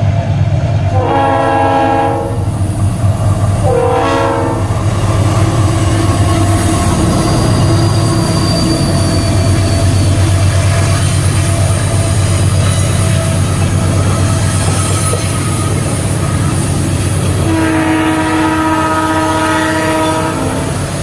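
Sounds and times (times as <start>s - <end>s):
train engine and wheel rumble: 0.0s - 21.0s
locomotive horn blasts: 0.9s - 2.5s, 3.6s - 4.7s, 17.4s - 20.8s
high wheel squeal: 6.0s - 17.4s.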